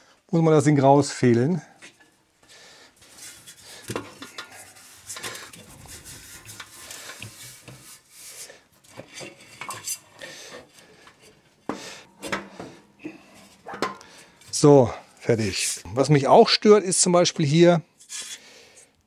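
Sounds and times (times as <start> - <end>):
metal drum clinking and scraping: 3.2 - 7.6, 11.0 - 15.0.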